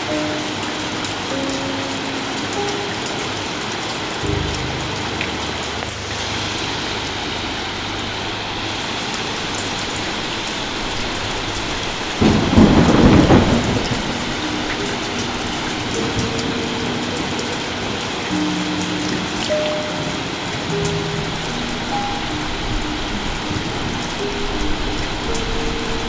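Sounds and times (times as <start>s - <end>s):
heavy rain: 0.0s - 26.0s
rushing river water: 0.0s - 26.0s
thunderclap rumbling: 4.2s - 18.0s.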